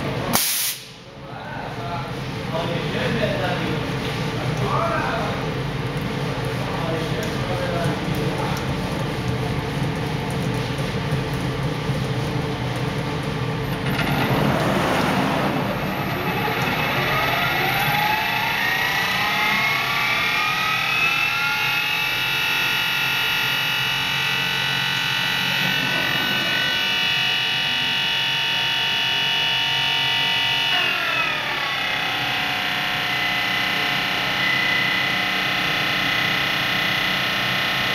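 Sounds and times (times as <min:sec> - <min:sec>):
brief rushing hiss: 0:00.4 - 0:01.0
machine hum: 0:01.8 - 0:37.9
spindle whine: 0:11.4 - 0:37.9.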